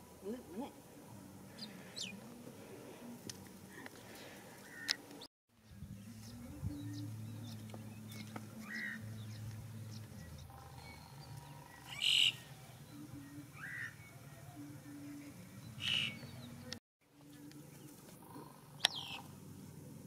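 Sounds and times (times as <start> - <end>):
steady low hum: 5.6 - 20.0
short high chirping calls: 8.1 - 12.7, 15.8 - 16.4.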